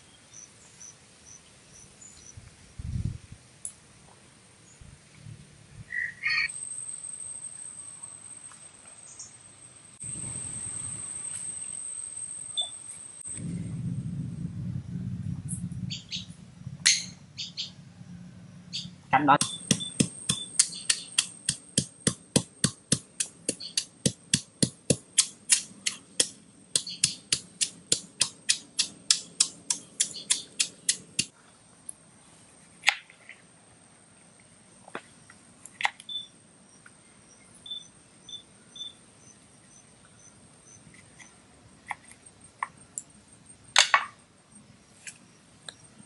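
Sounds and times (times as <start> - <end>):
faint high insect chirps: 5.9 - 13.6, 33.7 - 46.0
stone pestle pounding in mortar: 19.4 - 31.3.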